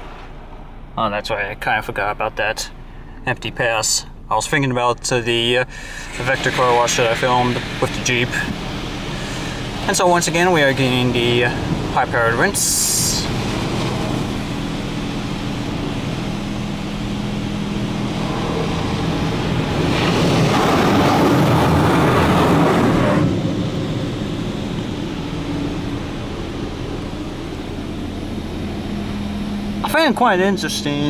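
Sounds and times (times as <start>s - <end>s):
steady low hum: 0.0s - 31.0s
high-pressure water jets spraying: 5.7s - 27.6s.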